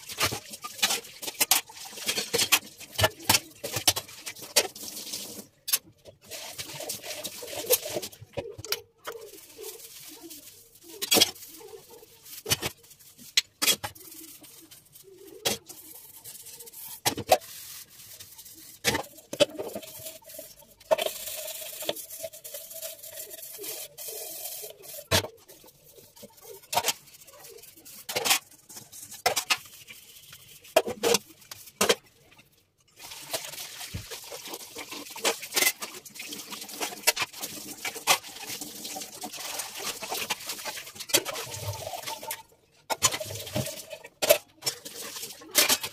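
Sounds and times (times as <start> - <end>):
metal utensils clanking in sink: 0.0 - 9.7, 33.0 - 45.9.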